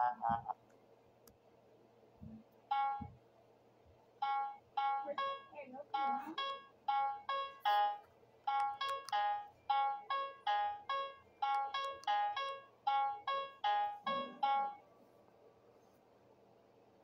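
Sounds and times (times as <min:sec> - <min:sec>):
electronic game beeps: 0:02.7 - 0:03.1, 0:04.2 - 0:14.8.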